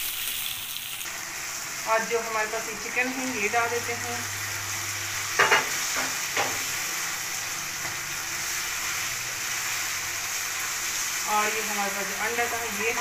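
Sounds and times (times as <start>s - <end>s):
food sizzling in a wok: 0.0s - 13.0s.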